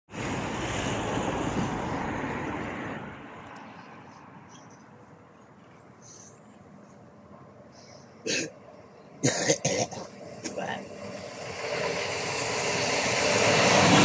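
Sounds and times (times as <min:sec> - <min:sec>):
vehicle passing: 0:00.1 - 0:05.4, 0:10.2 - 0:14.0
low background traffic: 0:00.2 - 0:14.0.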